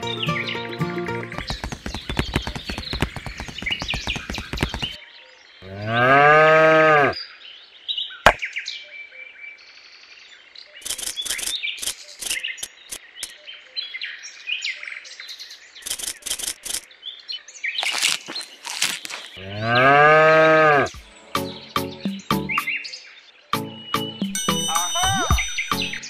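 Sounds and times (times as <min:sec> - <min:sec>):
birds chirping: 0:00.0 - 0:05.0, 0:10.6 - 0:26.0
cow mooing: 0:05.6 - 0:07.2, 0:19.4 - 0:20.9.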